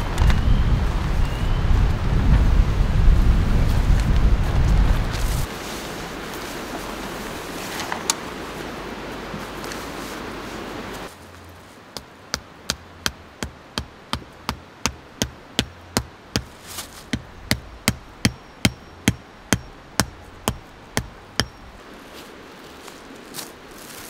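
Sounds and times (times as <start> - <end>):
hammer striking tent stake: 12.0 - 21.7.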